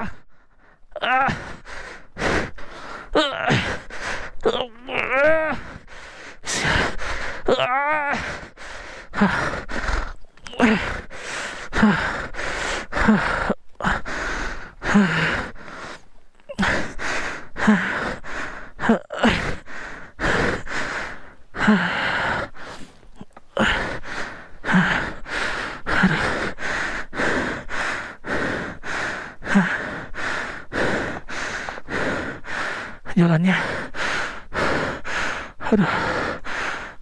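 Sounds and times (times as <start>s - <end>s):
man grunting: 0.0s - 0.2s, 1.0s - 1.5s, 3.2s - 3.8s, 4.4s - 5.8s, 6.5s - 8.4s, 10.4s - 11.0s, 33.1s - 33.8s
man panting hard: 0.0s - 4.5s, 5.4s - 7.5s, 8.1s - 37.0s.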